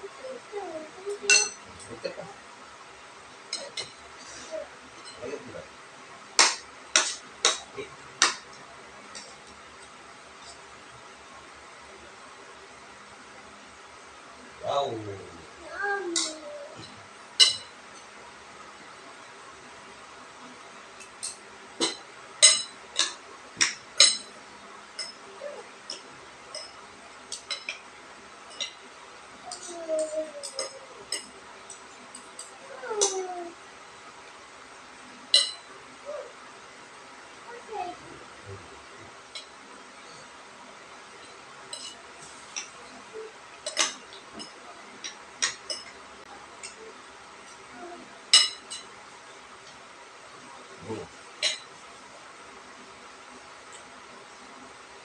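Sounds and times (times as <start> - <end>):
cutlery clinking on dishes: 1.3 - 1.6, 6.4 - 8.4, 16.2 - 18.1, 21.0 - 24.4, 25.0 - 25.2, 25.9 - 27.9, 28.5 - 28.8, 29.5 - 33.2, 35.3 - 35.7, 41.2 - 42.8, 43.6 - 46.0, 48.3 - 48.9, 51.4 - 51.7.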